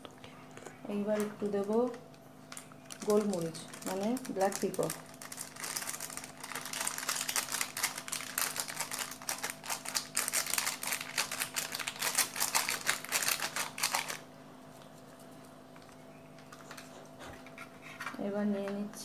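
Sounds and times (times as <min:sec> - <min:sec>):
plastic sachet crinkling: 0:01.0 - 0:14.8, 0:15.8 - 0:17.0.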